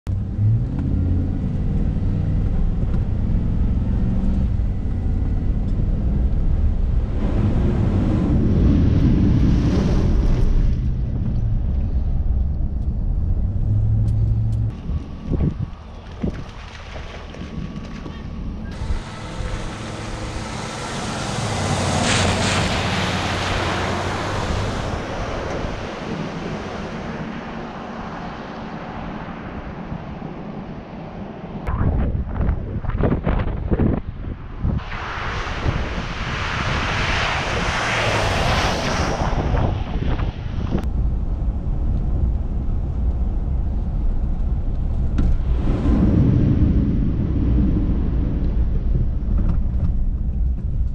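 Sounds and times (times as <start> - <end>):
low engine hum: 0.1 - 50.9
water splashing: 15.6 - 27.1.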